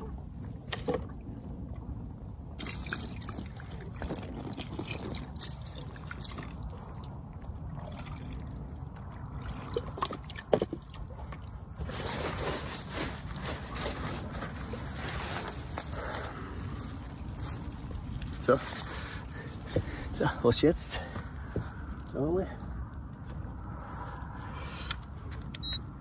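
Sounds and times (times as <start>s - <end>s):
water dripping and trickling: 1.7s - 11.6s.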